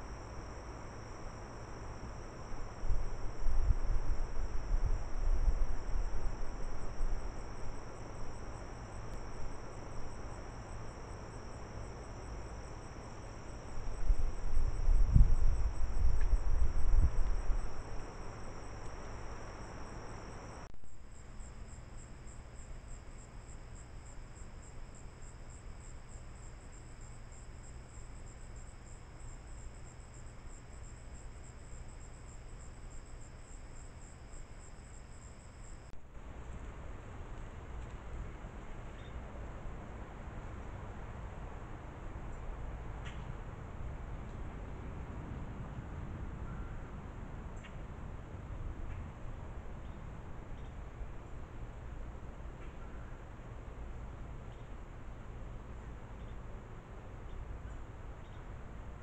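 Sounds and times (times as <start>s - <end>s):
night insects chirring: 0.0s - 36.0s, 39.0s - 39.2s, 49.8s - 54.7s, 55.3s - 59.0s.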